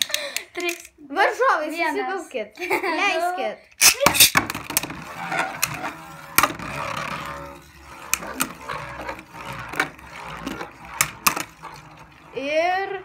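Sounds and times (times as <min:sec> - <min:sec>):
spinning tops clacking together: 0:03.8 - 0:12.3
spinning tops whirring: 0:03.8 - 0:13.0.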